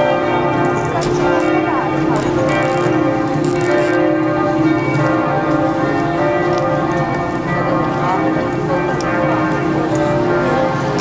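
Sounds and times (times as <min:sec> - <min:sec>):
church bells pealing: 0:00.0 - 0:11.0.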